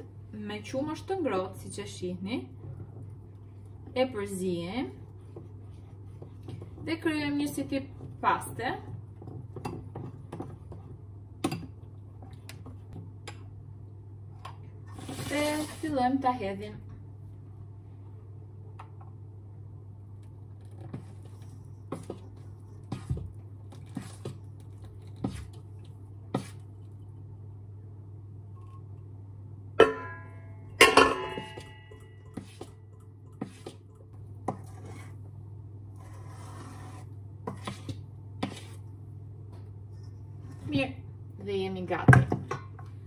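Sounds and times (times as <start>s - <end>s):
spoon scraping in metal bowl: 34.5s - 35.2s, 36.0s - 38.8s.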